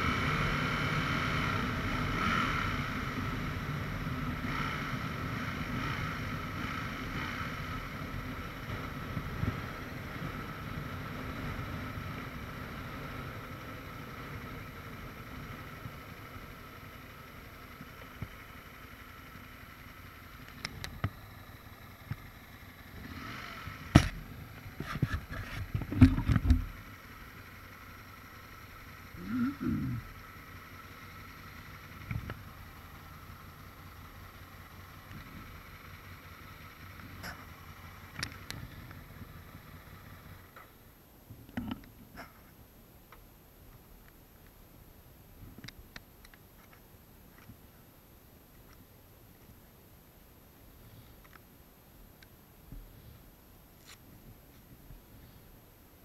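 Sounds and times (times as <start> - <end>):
motorcycle engine: 0.0 - 43.2
sharp knocks and low thumps: 24.8 - 26.8.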